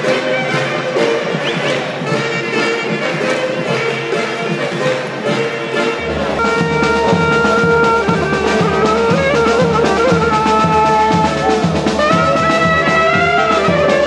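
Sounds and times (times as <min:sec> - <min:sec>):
brass band playing: 0:00.0 - 0:14.0
bass drums beating: 0:06.0 - 0:14.0.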